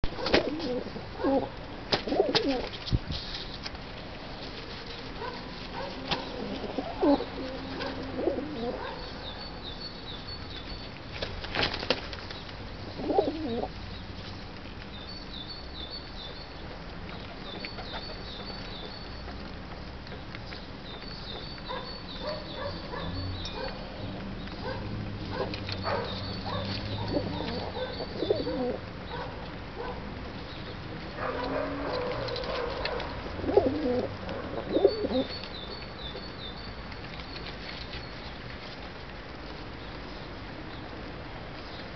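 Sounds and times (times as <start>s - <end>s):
pigeons cooing: 0.1s - 2.7s, 5.2s - 9.1s, 12.8s - 13.7s, 21.7s - 30.0s, 31.2s - 35.4s.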